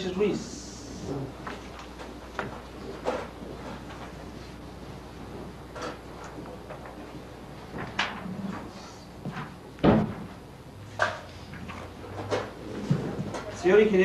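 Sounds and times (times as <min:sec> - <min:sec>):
knocks and thumps: 0:09.3 - 0:10.4.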